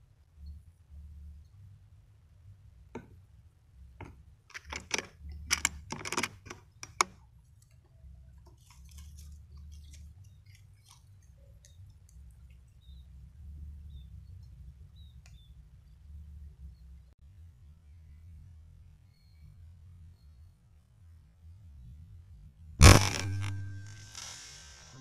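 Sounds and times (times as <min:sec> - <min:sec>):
low steady rumble: 0:00.0 - 0:25.0
faint scattered ticks: 0:03.9 - 0:17.0
handling rustles and clicks: 0:04.0 - 0:12.7.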